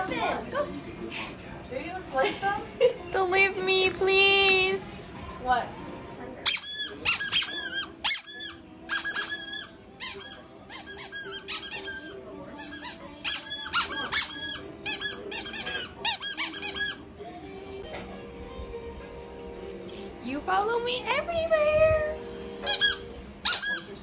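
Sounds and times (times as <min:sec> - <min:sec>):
rapid high-pitched squeaks: 0:06.5 - 0:17.0.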